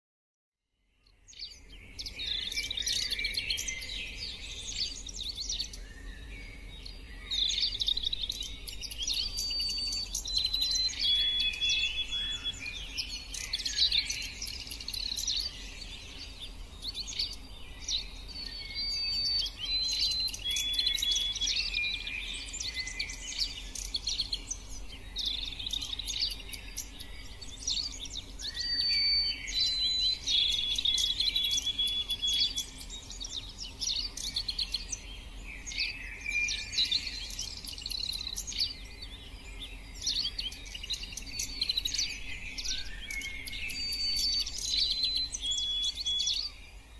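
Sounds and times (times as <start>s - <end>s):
songbirds chirping and whistling: 0.8s - 46.9s.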